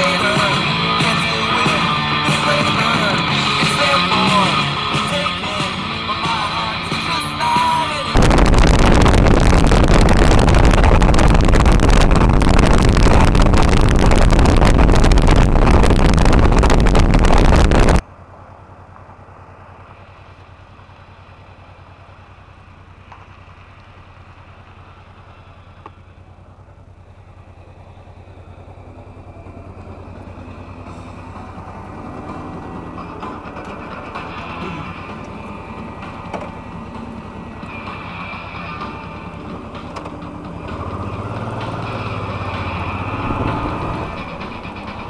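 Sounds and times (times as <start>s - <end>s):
motorcycle engine running: 0.0s - 45.0s
wind buffeting microphone: 8.2s - 18.0s, 43.0s - 45.0s.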